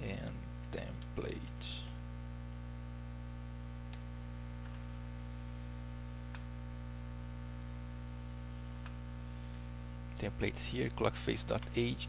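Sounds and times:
electrical mains hum: 0.0 - 12.0
faint computer clicks: 6.3 - 6.5.

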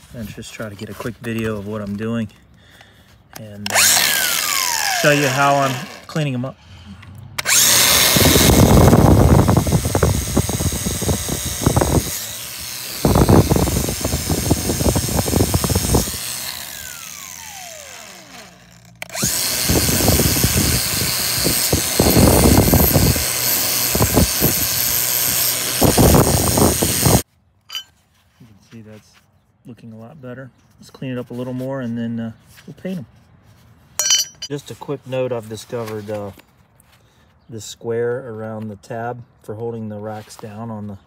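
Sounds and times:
wire wheel scrubbing metal: 7.5 - 27.9, 34.0 - 34.5.

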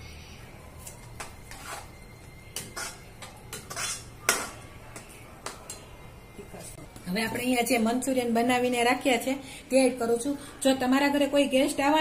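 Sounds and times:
metal spatula scraping a wok: 1.4 - 4.7.

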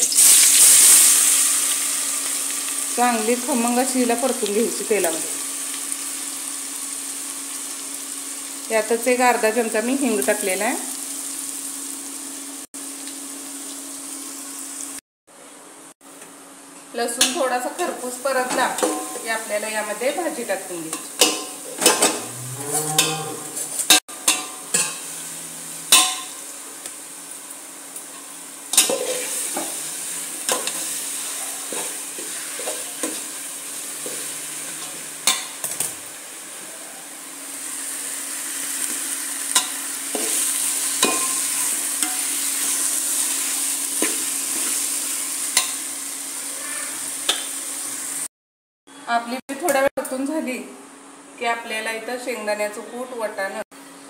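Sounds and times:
oil sizzling in a pot: 0.0 - 15.0, 17.0 - 48.3
metal spoon scraping a pot: 21.2 - 24.0.

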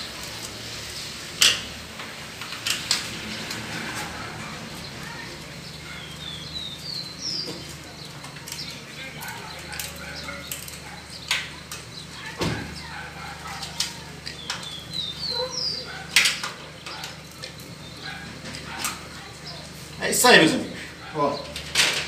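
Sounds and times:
bird singing rising notes: 14.3 - 15.9.

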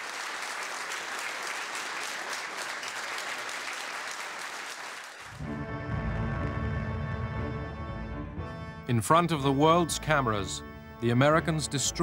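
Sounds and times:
audience applauding: 0.0 - 5.5
background music low sustained notes: 5.4 - 12.0.

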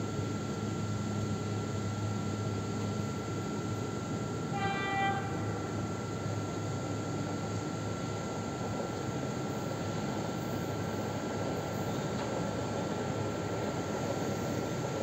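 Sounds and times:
train horn blast: 4.5 - 5.7.

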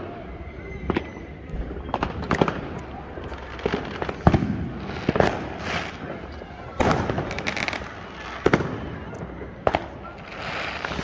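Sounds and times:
fireworks bangs: 0.0 - 11.0
fireworks hiss: 10.2 - 11.0.

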